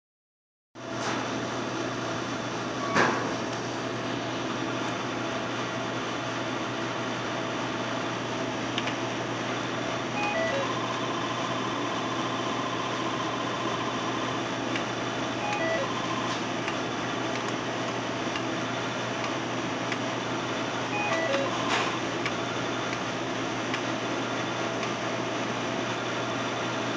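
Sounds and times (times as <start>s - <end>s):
steady hum: 3.6s - 26.9s
slot machine electronic beeps: 10.2s - 10.9s, 15.4s - 16.3s, 20.9s - 21.7s.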